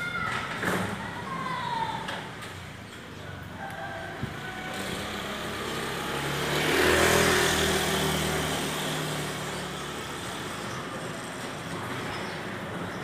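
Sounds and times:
motor vehicle passing: 3.9 - 13.0.

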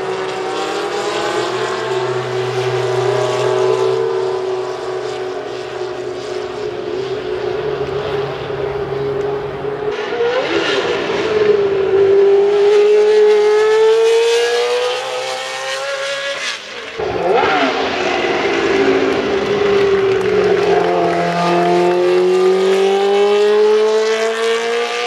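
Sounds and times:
racing car engines at high revs: 0.0 - 25.0.

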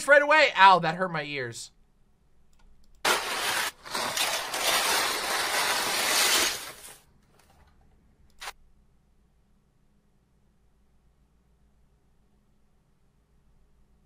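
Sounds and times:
pasta rattling into foil pan: 3.1 - 7.0.

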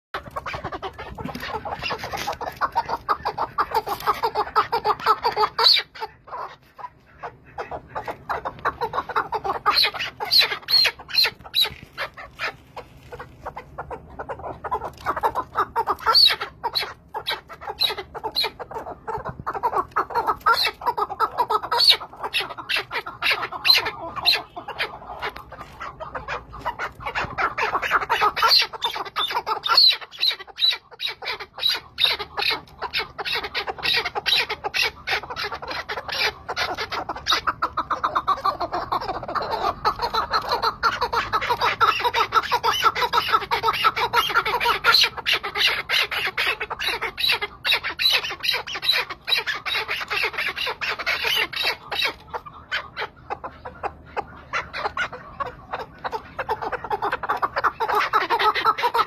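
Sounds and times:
partridge chucking calls: 0.2 - 59.0.

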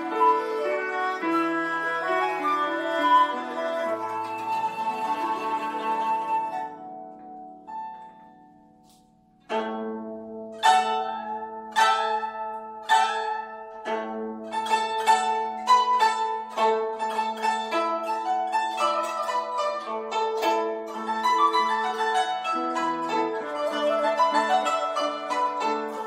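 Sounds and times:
guzheng plucked notes: 0.0 - 26.0.

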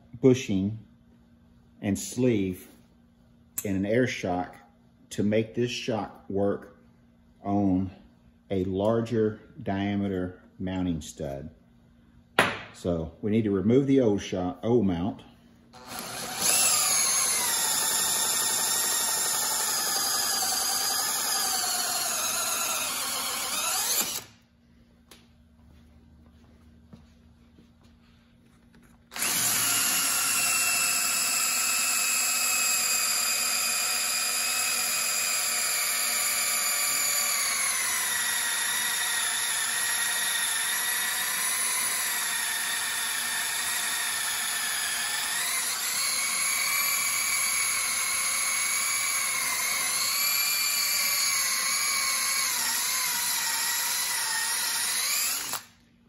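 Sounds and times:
cordless drill boring: 15.8 - 24.4, 29.1 - 55.8.

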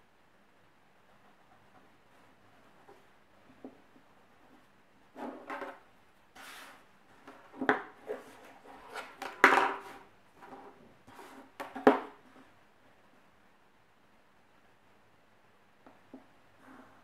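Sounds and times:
paper sliding rustle: 6.4 - 6.9.

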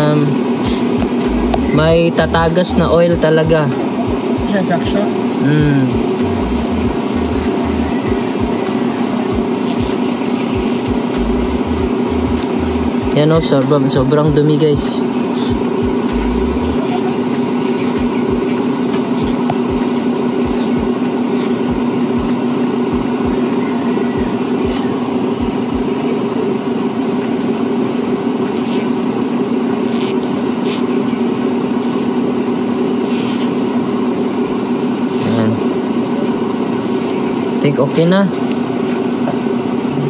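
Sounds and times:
steady motor hum: 0.0 - 40.0
soft low thumps: 25.4 - 26.0.

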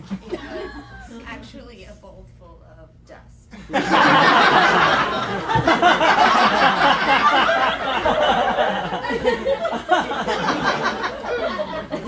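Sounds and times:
audience laughing loudly: 3.6 - 12.0.

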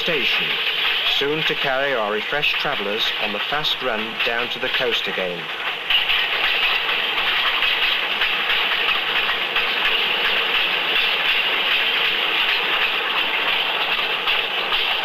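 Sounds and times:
steam train running: 0.0 - 15.0.

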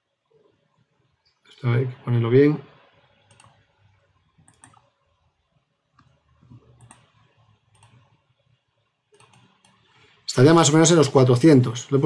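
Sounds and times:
faint computer mouse clicks: 3.3 - 3.6, 4.4 - 4.9, 5.9 - 8.1, 9.1 - 9.9.

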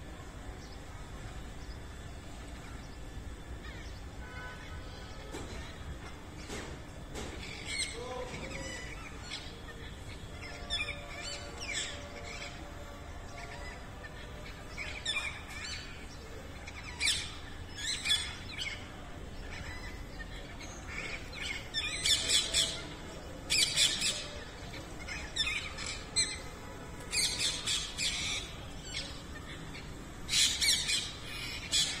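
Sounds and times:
parakeets screeching squawks: 19.4 - 26.5, 27.1 - 32.0.

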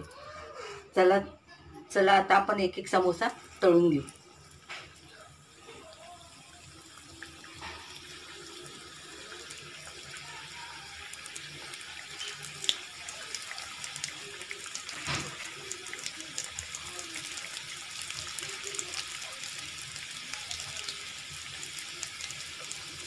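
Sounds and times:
food sizzling in hot oil: 2.8 - 23.0
oil crackling and popping: 6.9 - 23.0.

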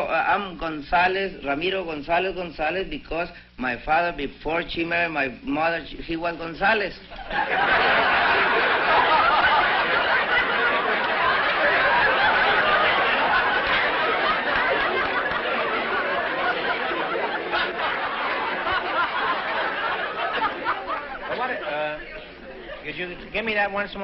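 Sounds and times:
studio audience laughing: 7.1 - 23.3.

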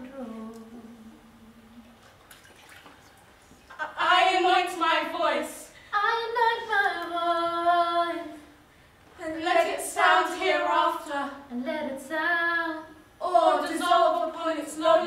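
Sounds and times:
woman singing unaccompanied: 0.0 - 1.8, 3.8 - 8.4.

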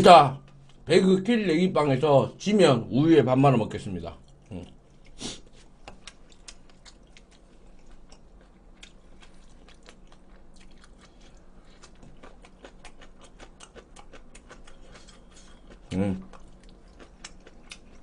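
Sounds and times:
man chewing food: 4.2 - 18.0.

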